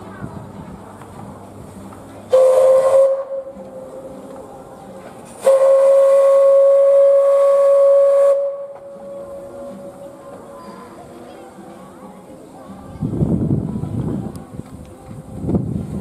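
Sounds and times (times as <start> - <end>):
steam locomotive whistle: 2.3 - 3.6, 5.4 - 9.8.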